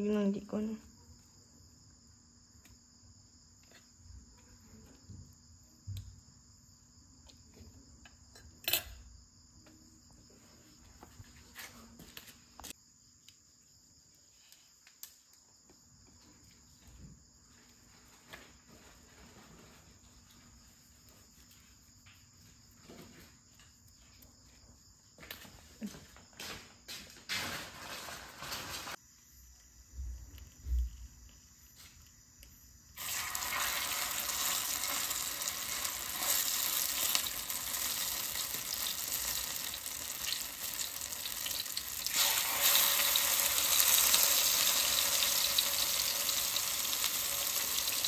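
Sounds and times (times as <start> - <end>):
insects trilling: 27.8 - 48.0.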